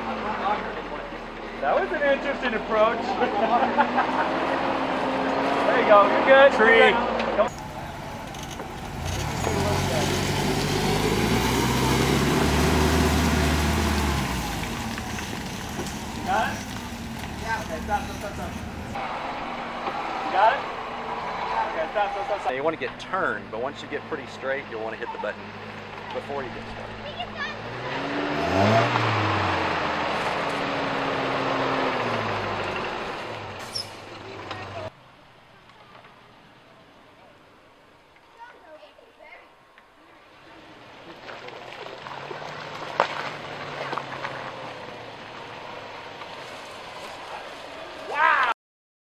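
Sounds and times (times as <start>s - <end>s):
engine pulling under load: 0.0s - 35.0s, 40.4s - 48.1s
tyres churning through mud: 0.0s - 37.5s, 40.1s - 48.5s
truck engine running under load: 7.2s - 19.7s.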